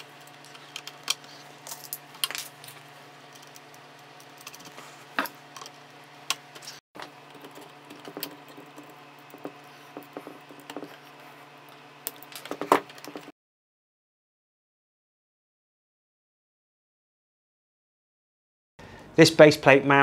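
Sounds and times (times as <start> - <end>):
steady low hum: 0.0 - 13.3.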